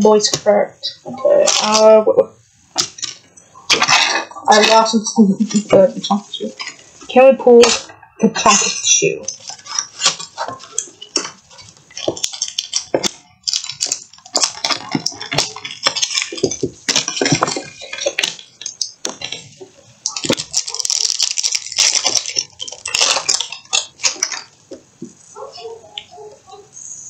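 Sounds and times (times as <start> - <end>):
foil wrapper crinkling: 1.4 - 2.0, 2.8 - 7.9, 8.6 - 26.6
blister packaging tearing: 9.3 - 24.6.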